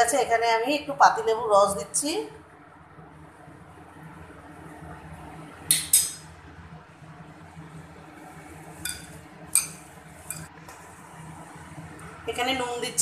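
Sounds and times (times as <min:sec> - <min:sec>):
glass bowl clinking: 0:08.8 - 0:10.5.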